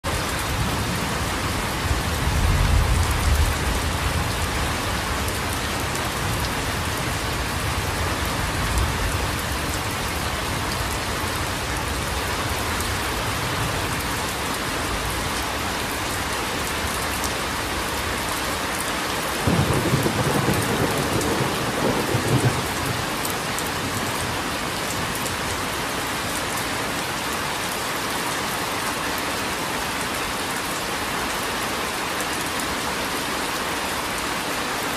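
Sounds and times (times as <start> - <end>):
steady rain: 0.0 - 34.9
thunder rumbling: 19.4 - 24.4.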